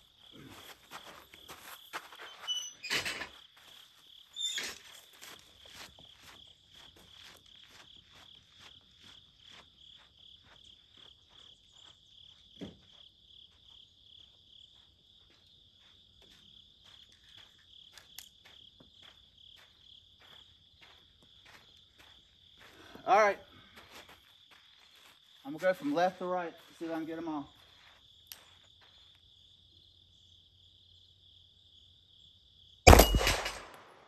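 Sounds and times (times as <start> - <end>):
insects chorus: 0.0 - 34.0
faint regular ticks: 28.2 - 28.6.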